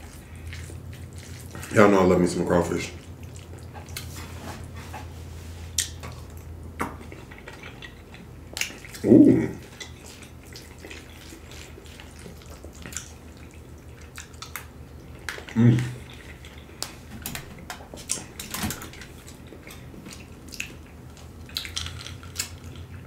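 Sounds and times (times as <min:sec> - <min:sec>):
wet chewing: 0:00.0 - 0:05.1, 0:05.7 - 0:23.0
vocal sound of enjoyment: 0:09.0 - 0:09.6.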